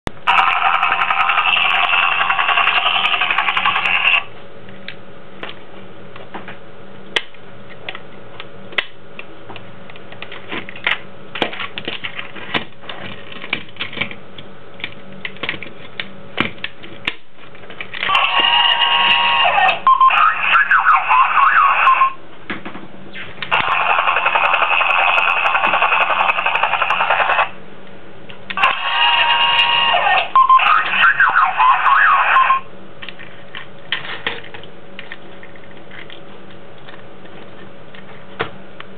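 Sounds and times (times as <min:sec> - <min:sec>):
buzzing toy engine effect: 0:00.2 - 0:04.3, 0:18.1 - 0:22.2, 0:23.5 - 0:27.6, 0:28.6 - 0:32.7.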